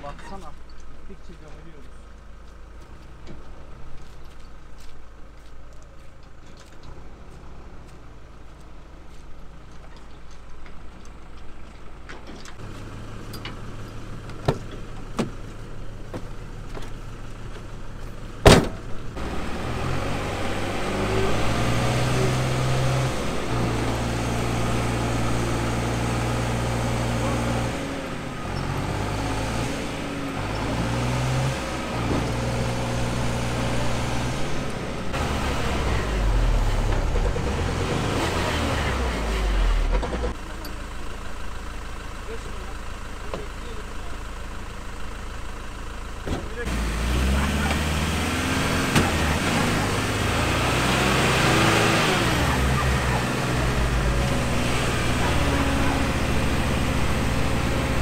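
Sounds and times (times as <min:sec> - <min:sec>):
truck engine running: 0:00.0 - 0:58.0
door slamming: 0:18.4 - 0:18.9.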